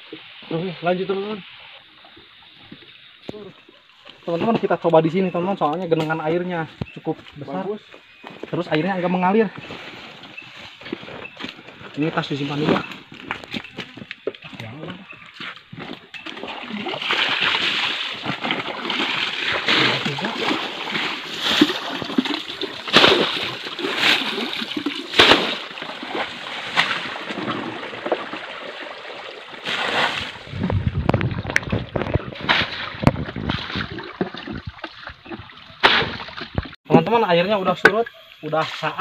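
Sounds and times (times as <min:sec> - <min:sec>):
water splashing and sloshing: 0:09.9 - 0:36.8.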